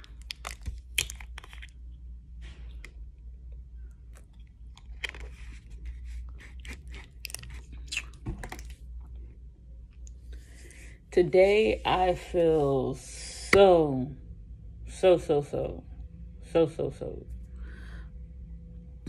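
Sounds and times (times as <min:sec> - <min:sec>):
plastic bottle crinkling: 0:00.0 - 0:01.8.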